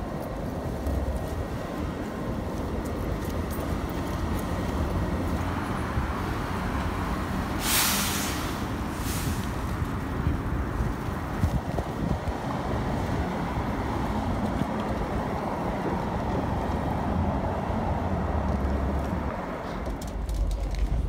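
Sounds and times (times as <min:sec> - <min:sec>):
city traffic rumble: 0:00.0 - 0:21.0
loud hiss: 0:07.4 - 0:10.0.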